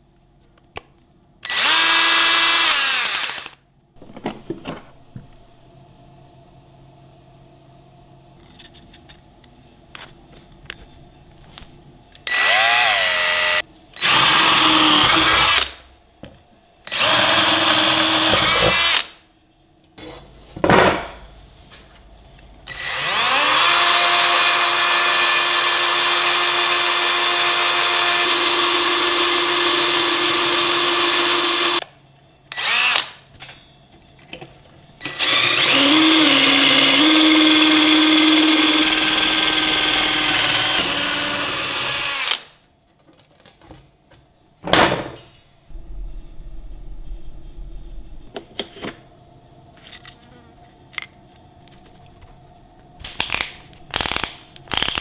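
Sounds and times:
cordless drill whining: 1.4 - 3.6, 12.3 - 15.7, 16.9 - 19.0, 22.7 - 31.8, 32.5 - 33.0, 35.1 - 42.4.

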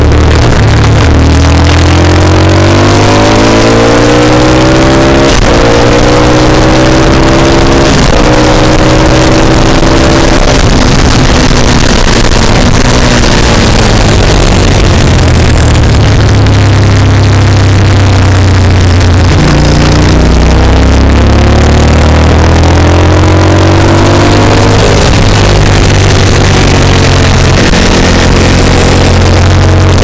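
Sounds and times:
motorcycle engine accelerating: 0.0 - 30.0
wind rush on microphone: 7.8 - 19.9, 23.8 - 30.0.

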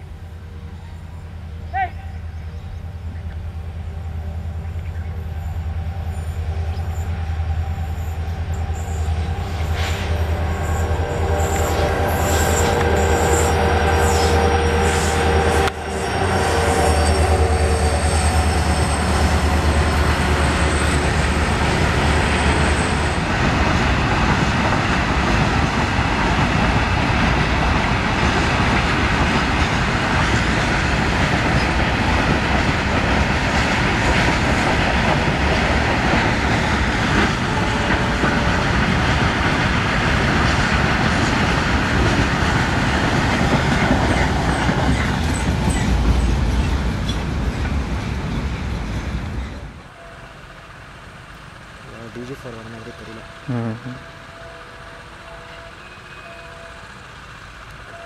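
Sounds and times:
thin high whine: 0.0 - 23.3
diesel locomotive engines droning: 0.0 - 58.0
train wagons rumbling on rails: 0.0 - 58.0.

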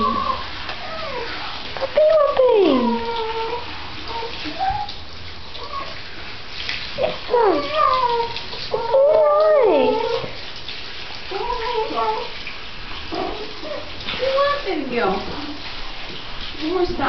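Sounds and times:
puppy whining: 0.0 - 5.0, 5.6 - 6.0, 7.1 - 10.4, 11.3 - 12.4, 13.1 - 14.6.

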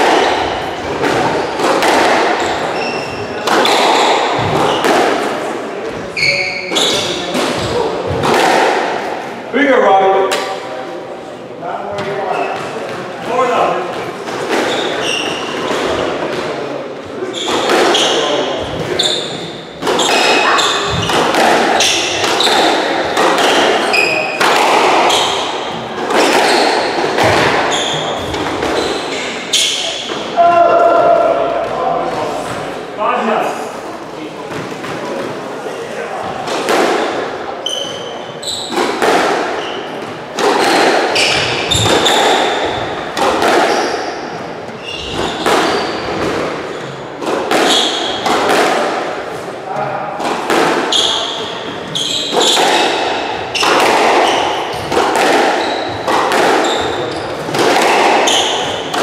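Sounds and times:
shoes squeaking on wooden floor: 0.0 - 5.0, 5.9 - 8.2, 12.0 - 12.9, 14.5 - 16.2, 17.1 - 30.3, 37.0 - 48.4, 50.9 - 59.0
squash ball smacking: 0.0 - 5.4, 6.7 - 9.4, 17.2 - 30.4, 36.3 - 49.5, 50.1 - 59.0.

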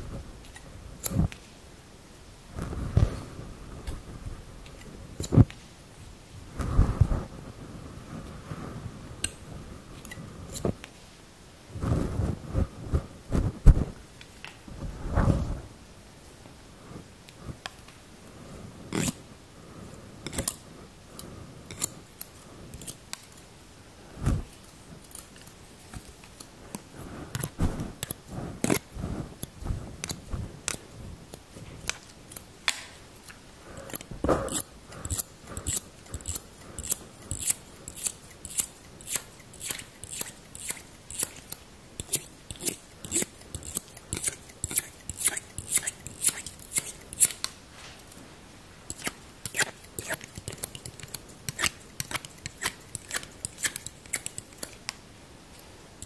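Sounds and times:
scissors snipping: 30.0 - 47.6, 48.9 - 55.0.

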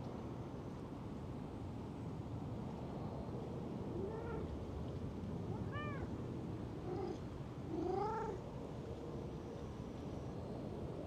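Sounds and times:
cat meowing: 5.6 - 6.1.

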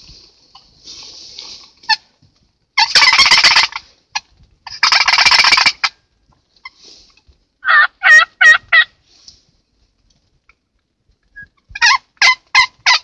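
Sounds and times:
turkey yelps: 2.8 - 5.9, 7.6 - 8.9, 11.4 - 13.0
turkey gobbling: 2.8 - 6.0, 7.6 - 8.9, 11.4 - 13.0.

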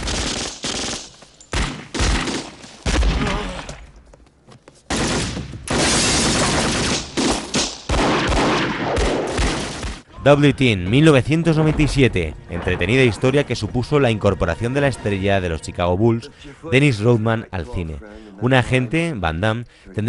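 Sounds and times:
gunshots and rapid fire: 0.0 - 3.4, 4.9 - 10.1.

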